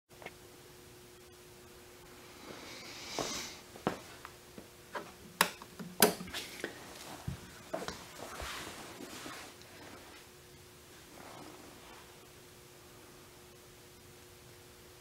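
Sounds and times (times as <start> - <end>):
faint steady hum: 0.1 - 15.0
short hiss: 2.6 - 3.6.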